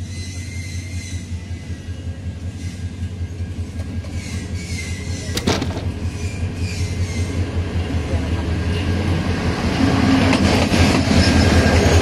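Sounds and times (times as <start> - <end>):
sharp clack: 5.4 - 6.1.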